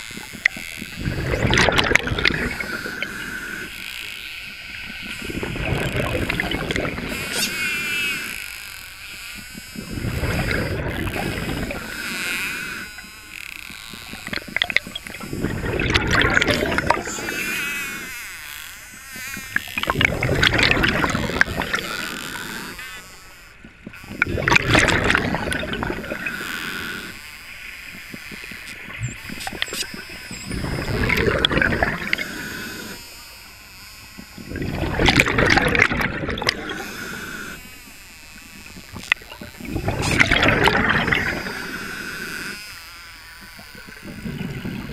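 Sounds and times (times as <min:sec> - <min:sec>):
exhaled bubbles gurgling underwater: 0:00.2 - 0:03.7, 0:04.7 - 0:08.4, 0:09.7 - 0:12.9, 0:14.2 - 0:18.1, 0:19.4 - 0:22.8, 0:23.6 - 0:27.2, 0:27.9 - 0:33.0, 0:34.4 - 0:37.6, 0:38.8 - 0:42.6, 0:43.6 - 0:44.9.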